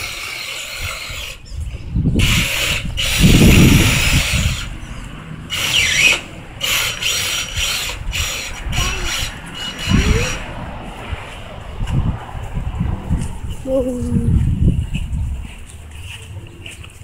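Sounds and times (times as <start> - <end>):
electric motor and gearbox whirring: 0.0 - 10.5.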